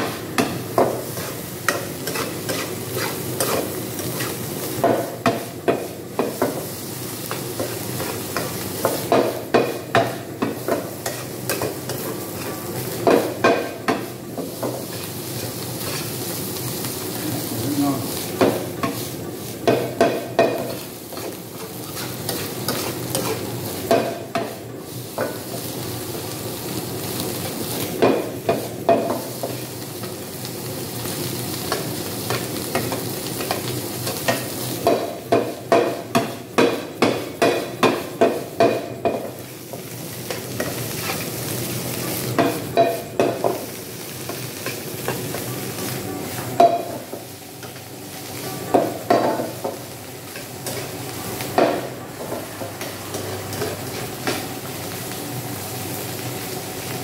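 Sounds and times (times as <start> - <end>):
rice sizzling in a pan: 0.0 - 57.0
metal spatula scraping a pan: 1.1 - 4.4, 21.6 - 23.4.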